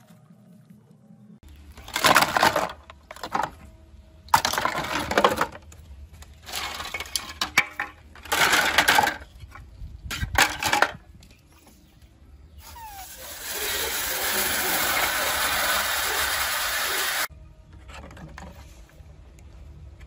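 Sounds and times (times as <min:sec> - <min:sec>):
plastic parts clattering: 0:01.6 - 0:11.5.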